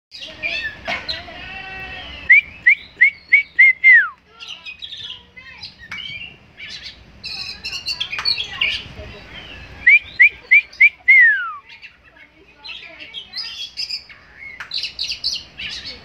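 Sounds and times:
bird singing chirps and whistles: 2.0s - 8.8s, 9.4s - 11.9s.

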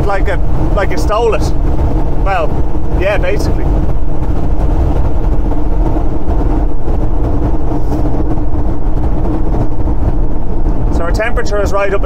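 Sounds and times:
diesel engine humming: 0.0s - 12.0s
road and wind noise: 0.0s - 12.0s.

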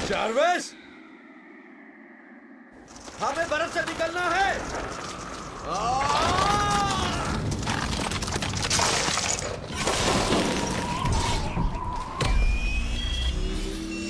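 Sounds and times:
ice cracking and shattering: 2.9s - 11.6s.

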